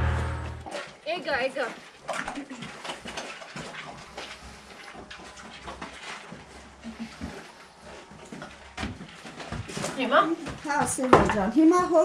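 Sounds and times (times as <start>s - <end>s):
faint knocks and rustles: 0.7s - 12.0s
footsteps on dirt floor: 2.5s - 12.0s.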